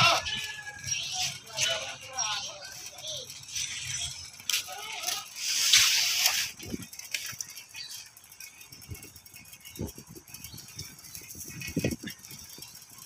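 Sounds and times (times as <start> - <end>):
vehicle rattling and knocking: 6.5 - 13.0.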